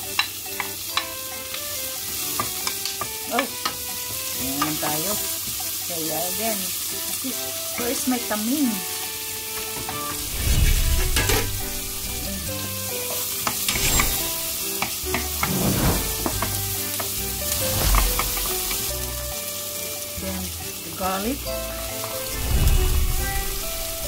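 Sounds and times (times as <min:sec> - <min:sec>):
onions sizzling in a pan: 0:00.0 - 0:24.0
wooden spatula scraping a pan: 0:13.1 - 0:19.1.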